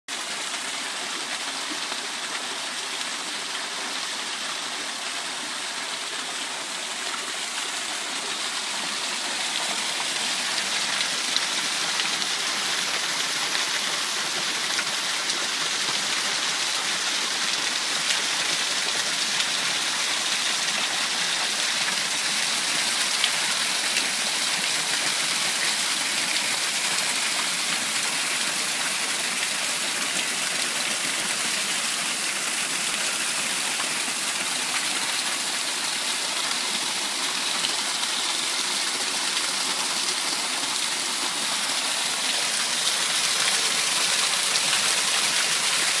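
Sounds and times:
small waterfall splashing over rocks: 0:00.1 - 0:46.0.

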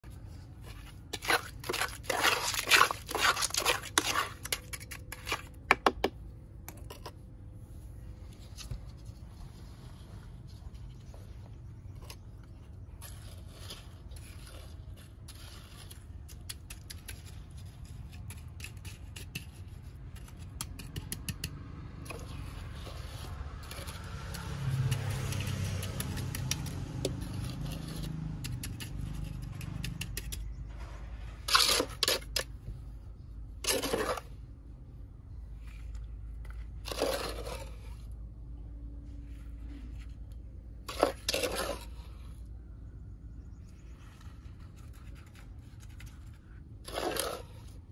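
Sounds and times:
wet cement sliding: 0:00.0 - 0:05.6, 0:11.9 - 0:20.6, 0:22.1 - 0:32.9, 0:33.5 - 0:34.5, 0:35.6 - 0:38.2, 0:39.7 - 0:42.5, 0:43.9 - 0:47.9
trowel scraping metal bucket: 0:00.2 - 0:05.6, 0:12.8 - 0:20.5, 0:22.1 - 0:32.6, 0:33.6 - 0:34.4, 0:35.8 - 0:38.1, 0:40.8 - 0:42.3, 0:44.6 - 0:47.9.

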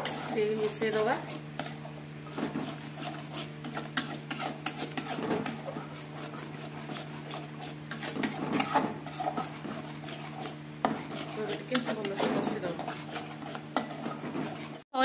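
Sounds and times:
metal ladle scraping a pan: 0:00.0 - 0:14.8
steady low hum: 0:00.0 - 0:14.8.

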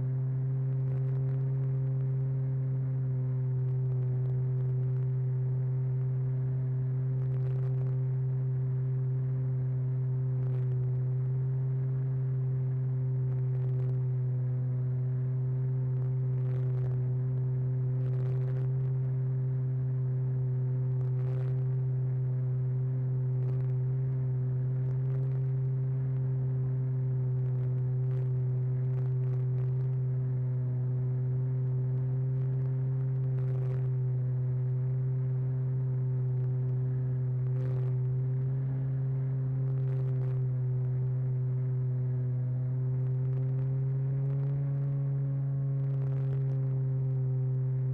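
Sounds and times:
faint crackles: 0:00.1 - 0:47.9.

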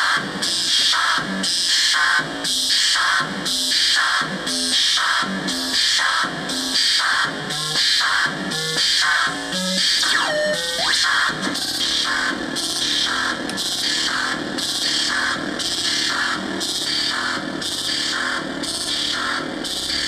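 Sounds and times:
buzzy synthesizer sequence: 0:05.2 - 0:18.4.

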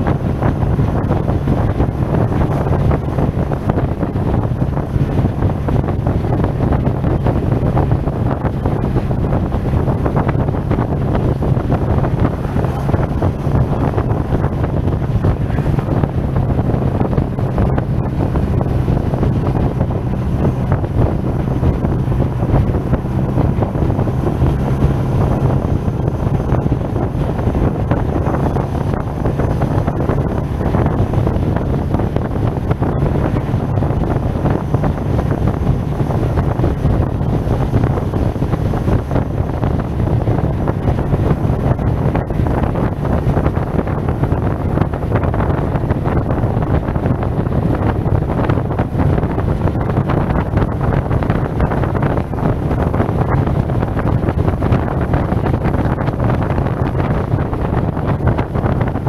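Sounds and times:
scooter engine droning: 0:00.0 - 0:56.1
wind buffeting microphone: 0:00.0 - 0:59.0.

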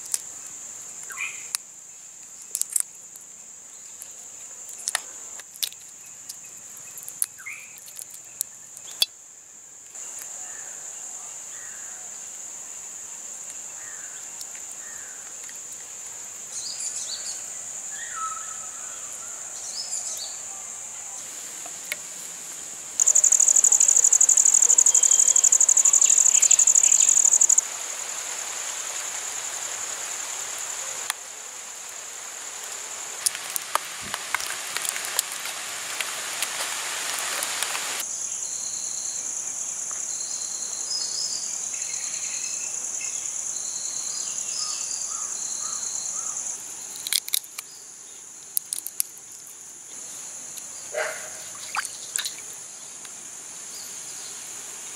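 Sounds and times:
insects trilling: 0:00.0 - 0:54.9
small clicks: 0:02.5 - 0:02.9, 0:47.0 - 0:47.7
birds chirping: 0:23.0 - 0:27.6.

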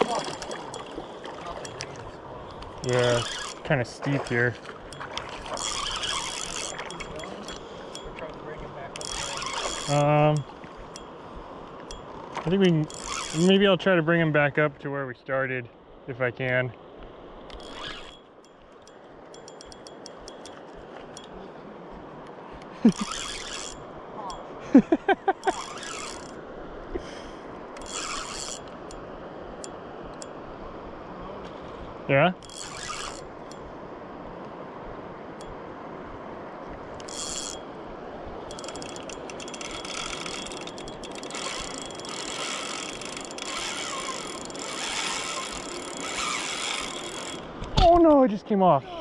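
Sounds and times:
fishing reel rotor whirring: 0:00.0 - 0:01.9, 0:02.7 - 0:08.2, 0:08.9 - 0:11.2, 0:11.8 - 0:13.6, 0:17.5 - 0:21.4, 0:22.9 - 0:24.4, 0:25.4 - 0:26.4, 0:27.8 - 0:29.0, 0:32.4 - 0:33.6, 0:37.0 - 0:37.7, 0:38.5 - 0:47.5
river water rushing: 0:00.0 - 0:14.3, 0:17.2 - 0:49.0
light ticks: 0:16.5 - 0:21.4.

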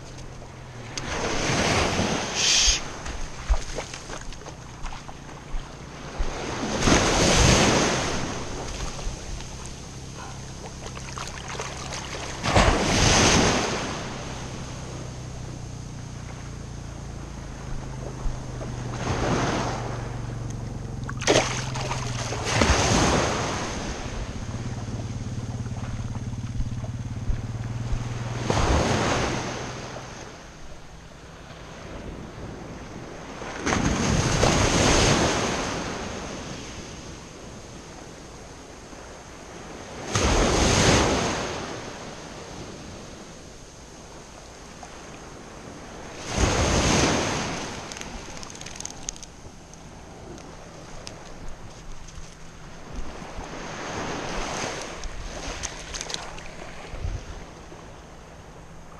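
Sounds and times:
low steady hum: 0:00.0 - 0:34.3
small waves breaking: 0:00.0 - 0:58.9.

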